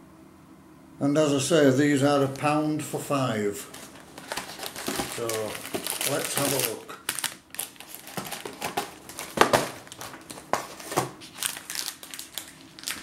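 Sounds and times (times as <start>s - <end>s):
packaging rustling and crinkling: 3.6s - 13.0s.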